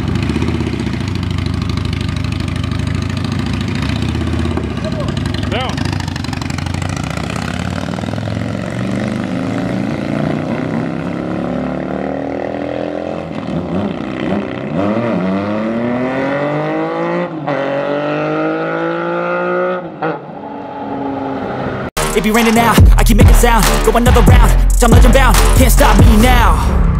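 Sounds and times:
motorcycle accelerating away: 0:00.0 - 0:21.9
motorcycles passing: 0:00.0 - 0:21.9.

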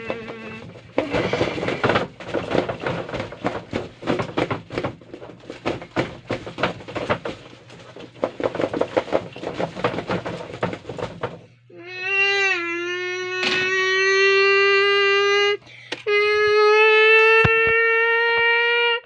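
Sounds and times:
cardboard box rattling and knocking: 0:00.0 - 0:11.6.

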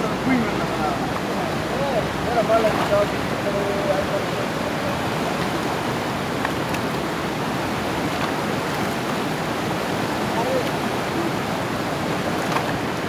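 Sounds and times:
river rapids rushing over rocks: 0:00.0 - 0:13.0.

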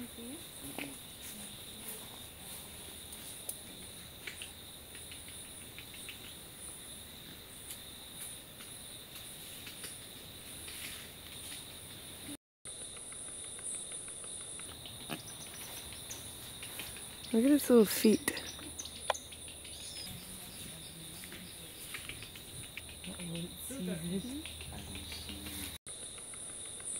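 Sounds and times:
insects shrilling: 0:00.0 - 0:26.9.

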